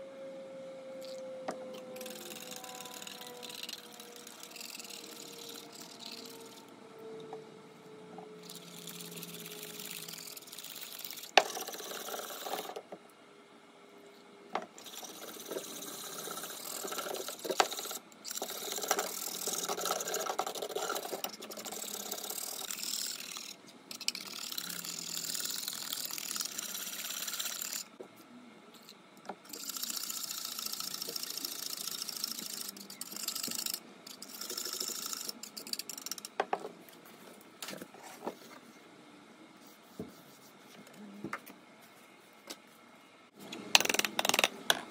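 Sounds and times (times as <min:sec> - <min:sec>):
whisk scraping in saucepan: 0:14.8 - 0:27.8.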